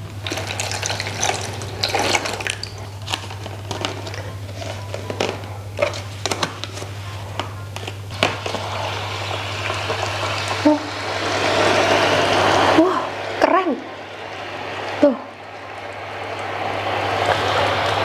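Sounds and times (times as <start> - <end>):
water pouring from plastic bottle: 0.2 - 4.2.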